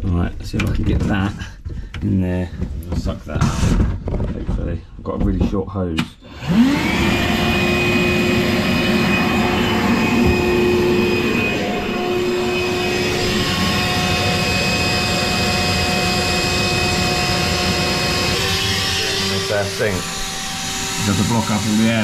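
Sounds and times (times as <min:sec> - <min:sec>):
vacuum cleaner whine: 0:06.2 - 0:22.0.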